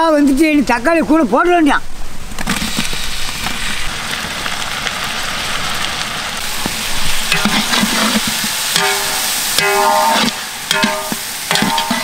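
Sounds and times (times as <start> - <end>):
oil sizzling with frying onions: 2.4 - 12.0.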